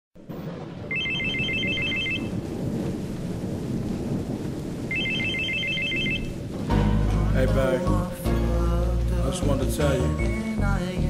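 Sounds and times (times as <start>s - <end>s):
low rumbling noise: 0.2s - 11.0s
electronic telephone ringing: 0.9s - 2.4s, 4.9s - 6.4s.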